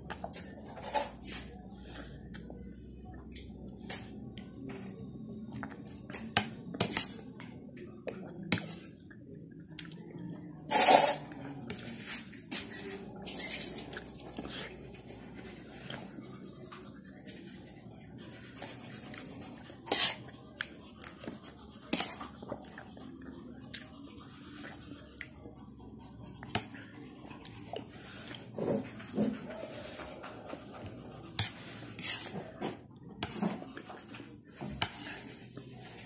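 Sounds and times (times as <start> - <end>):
chewing and mouth noises: 7.4 - 10.5.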